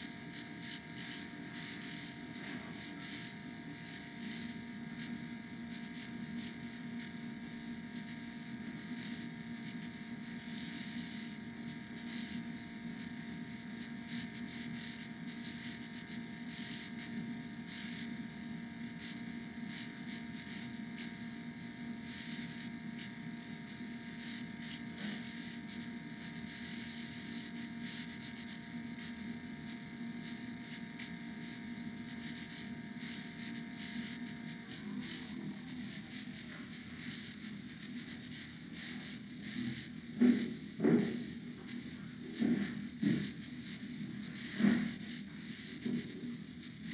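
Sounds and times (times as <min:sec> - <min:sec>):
mechanical whirring with hum: 0:00.0 - 0:46.9.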